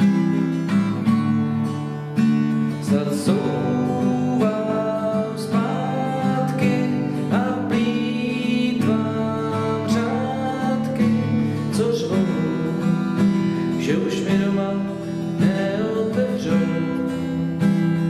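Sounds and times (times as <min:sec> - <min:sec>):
acoustic guitar strumming chords: 0:00.0 - 0:18.0.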